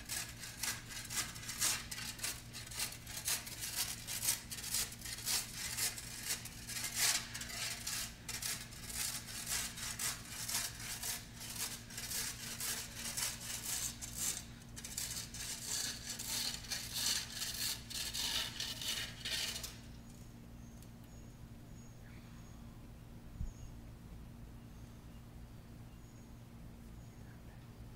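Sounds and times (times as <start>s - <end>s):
shovel scraping on concrete curb: 0.0s - 19.9s.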